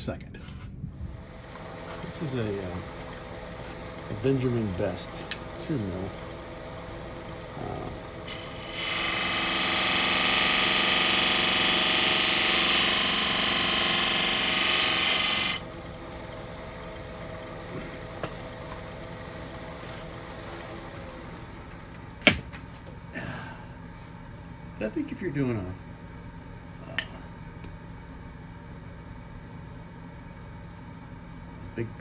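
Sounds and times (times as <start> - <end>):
lathe motor hum: 1.1 - 21.9
lathe tool scraping wood: 8.2 - 15.6.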